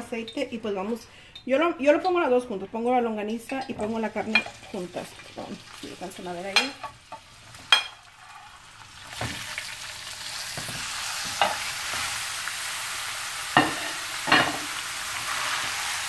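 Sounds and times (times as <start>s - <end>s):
meat sizzling in a frying pan: 4.1s - 16.0s.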